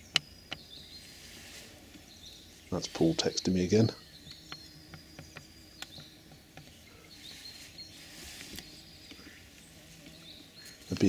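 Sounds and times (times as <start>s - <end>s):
distant birds singing: 0.0s - 11.0s
faint clicks: 4.2s - 6.8s.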